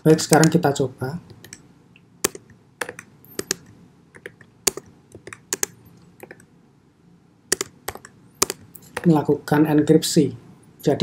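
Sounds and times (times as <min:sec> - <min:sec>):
keyboard keystroke clicks: 0:07.5 - 0:09.1.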